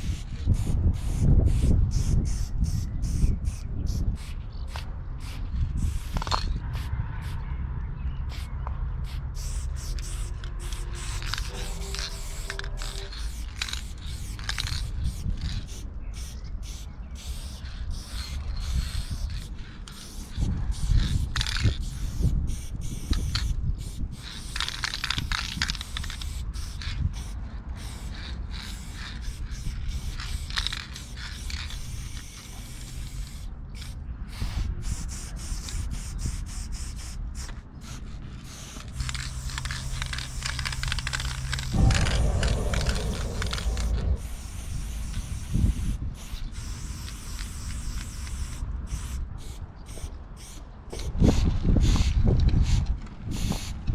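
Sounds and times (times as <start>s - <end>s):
spray paint cans hissing: 0.0s - 7.4s, 8.3s - 53.9s
low rumble: 9.6s - 14.1s, 40.0s - 45.3s.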